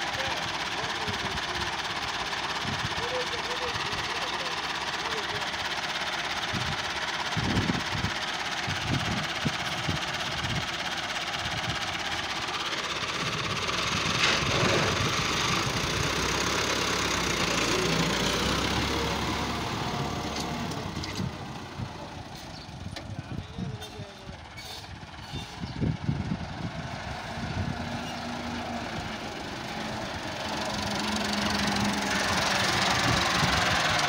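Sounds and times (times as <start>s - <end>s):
tractor diesel engine: 0.0s - 34.0s.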